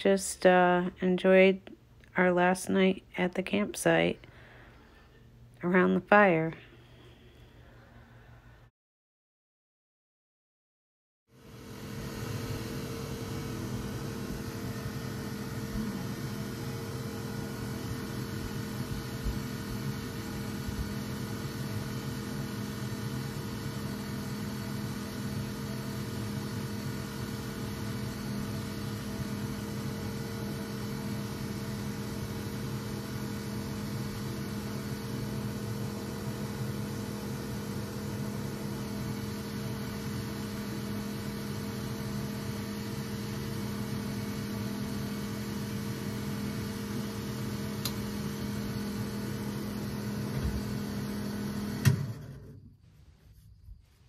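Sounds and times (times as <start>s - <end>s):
electric fan whirring: 11.3s - 54.0s
fan switch click: 47.8s - 48.0s.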